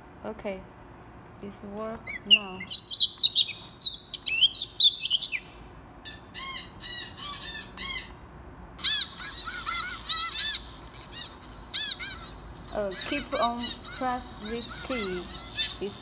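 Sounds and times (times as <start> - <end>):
bird calls from speaker: 2.0 - 5.5, 6.1 - 8.2, 8.8 - 16.0.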